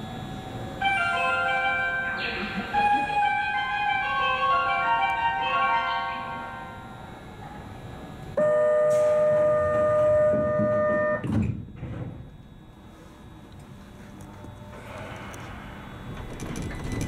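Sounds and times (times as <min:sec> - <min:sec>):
train door warning buzzer: 0:00.3 - 0:13.4.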